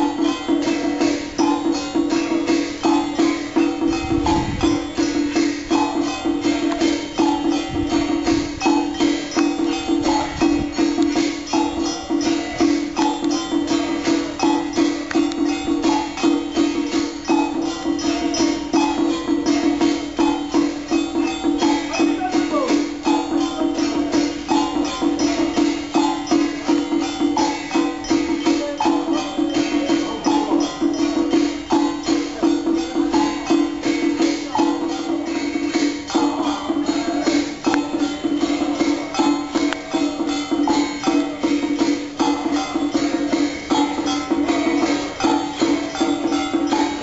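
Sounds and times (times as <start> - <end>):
fast percussion strokes: 0.0 - 47.0.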